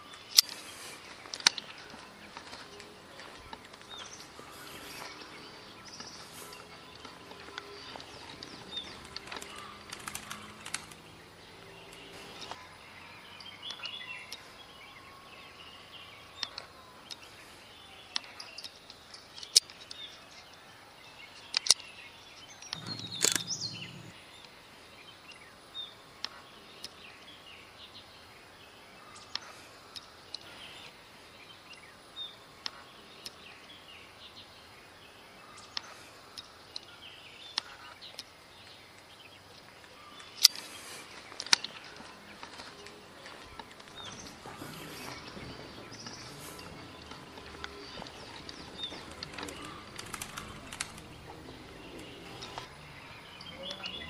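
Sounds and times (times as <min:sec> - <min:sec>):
sharp clicks: 0:05.9 - 0:11.1, 0:22.6 - 0:24.1, 0:46.0 - 0:52.7
high bird chirps and calls: 0:22.7 - 0:24.1.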